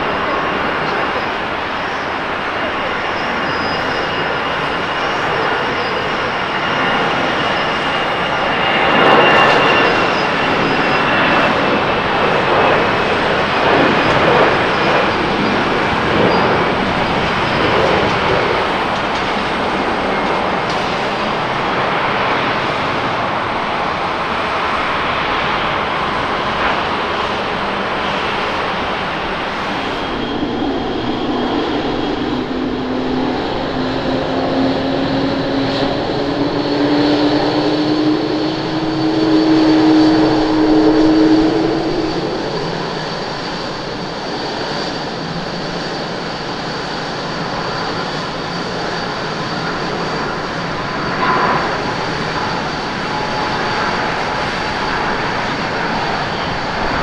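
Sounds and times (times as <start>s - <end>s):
jet engine whine rising in pitch: 0.0s - 57.0s
jet engines roaring at takeoff: 0.0s - 57.0s.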